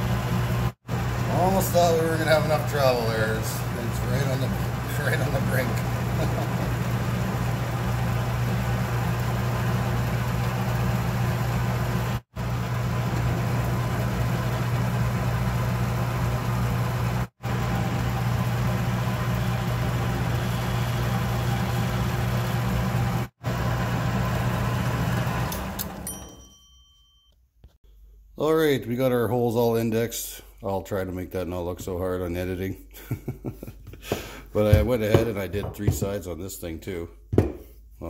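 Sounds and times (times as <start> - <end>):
metal lathe motor humming: 0.0 - 26.0.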